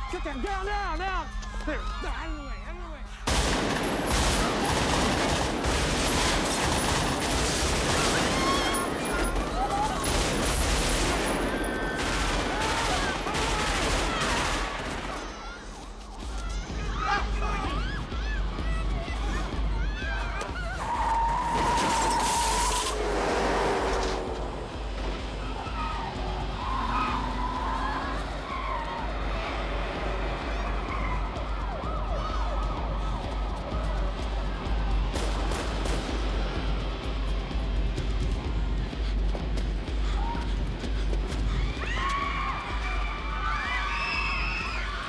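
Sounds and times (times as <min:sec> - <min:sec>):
rapid automatic rifle fire: 0:03.3 - 0:15.5
city traffic rumble: 0:03.4 - 0:45.0
police sirens wailing: 0:04.3 - 0:35.6.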